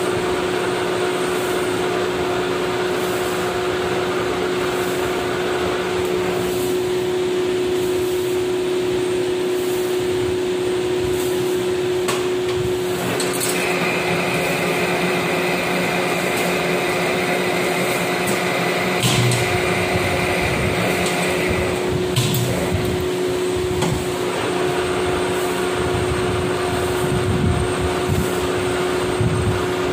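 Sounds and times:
high steady whine: 0:00.0 - 0:29.9
metal lathe humming: 0:12.7 - 0:29.9.

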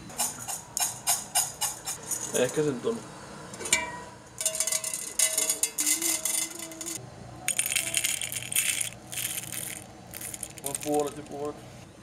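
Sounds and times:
coffee beans rattling in metal cup: 0:04.4 - 0:11.5.

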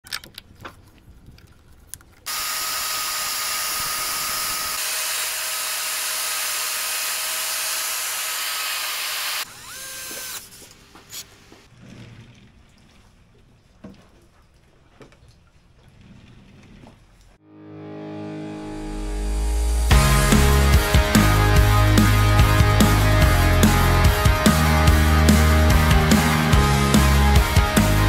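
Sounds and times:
electric wood router whining: 0:02.3 - 0:10.7.

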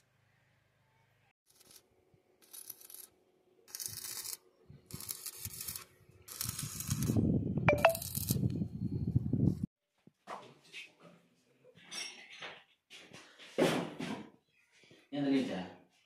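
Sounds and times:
arc welding crackling: 0:01.5 - 0:07.2.

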